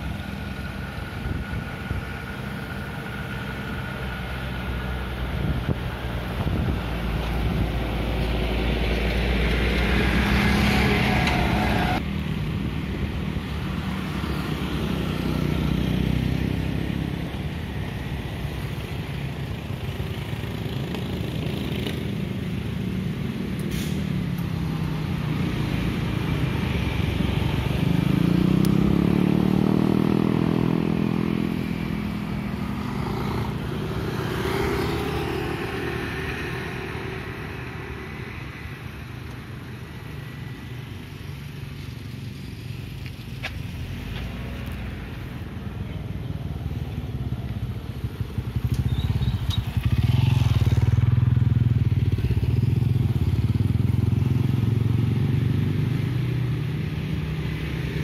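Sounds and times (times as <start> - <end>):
car passing: 0.0 - 12.1, 23.7 - 58.0
motorcycles passing: 0.0 - 58.0.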